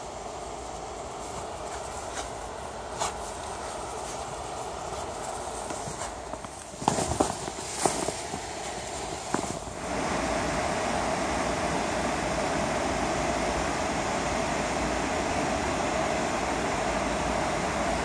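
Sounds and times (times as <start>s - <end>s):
footsteps crunching in snow: 0.6s - 9.8s.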